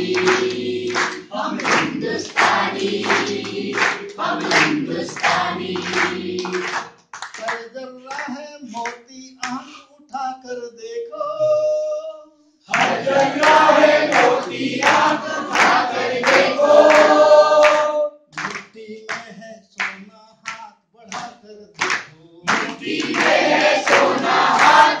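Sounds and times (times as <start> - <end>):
group singing in unison: 0.0 - 7.0, 12.7 - 19.4, 21.1 - 25.0
hand clapping: 0.0 - 9.6, 12.7 - 25.0
solo voice singing: 7.5 - 12.4.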